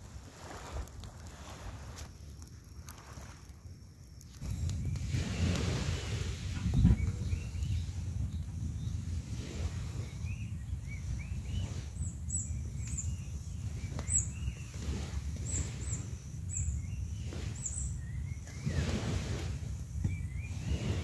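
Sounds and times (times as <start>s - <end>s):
small birds chirping: 4.2s - 21.0s
steady low rumble: 4.3s - 21.0s.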